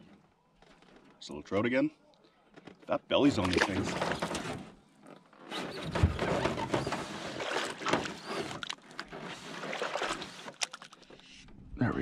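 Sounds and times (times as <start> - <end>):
knocking and rustling in boat: 2.6 - 10.7.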